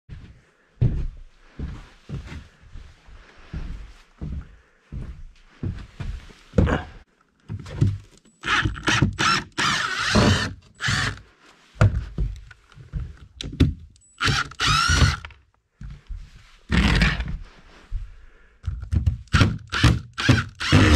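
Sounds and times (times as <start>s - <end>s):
cordless drill driving screws: 8.4s - 11.2s, 14.2s - 15.4s, 16.7s - 17.3s, 19.3s - 20.9s.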